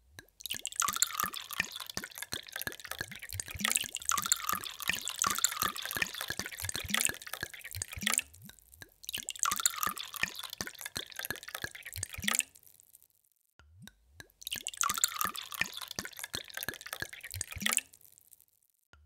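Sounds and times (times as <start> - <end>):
water pouring into a glass: 0.3 - 12.7, 14.4 - 18.4.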